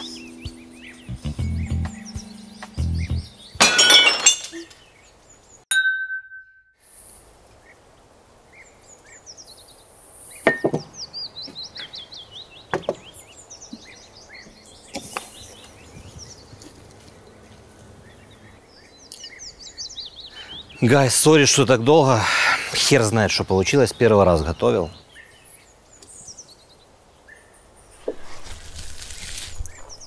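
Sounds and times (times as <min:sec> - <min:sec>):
birds chirping: 0:00.0 - 0:05.7, 0:06.9 - 0:28.2
dishes clinking: 0:03.6 - 0:04.8
plates smashing: 0:03.6 - 0:04.8.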